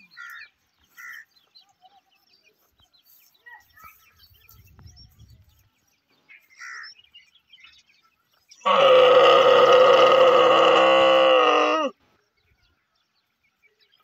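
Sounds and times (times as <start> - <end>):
camel calling: 8.6 - 11.9.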